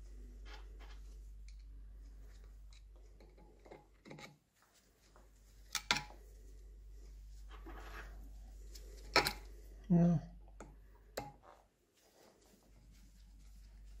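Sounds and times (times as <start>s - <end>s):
steady low hum: 0.0s - 3.6s, 4.7s - 11.2s.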